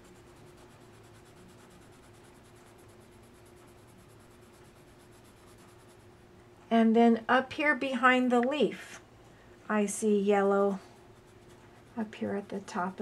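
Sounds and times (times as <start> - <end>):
pencil shading on paper: 0.0 - 6.2, 10.5 - 13.0.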